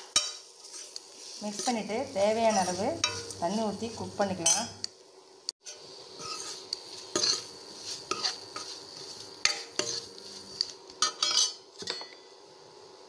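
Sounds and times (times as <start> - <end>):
light sizzle: 0.0 - 13.0
spoon scraping and clinking in pot: 1.5 - 3.4, 4.4 - 4.8, 5.7 - 12.2.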